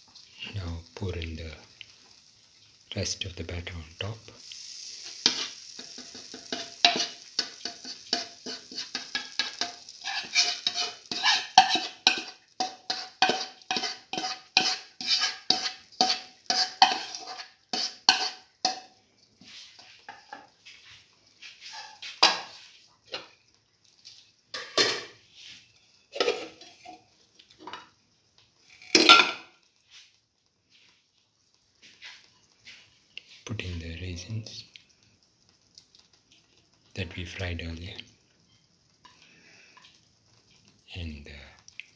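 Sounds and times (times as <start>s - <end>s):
metal spoon scraping a pan: 4.6s - 23.4s, 24.5s - 27.9s.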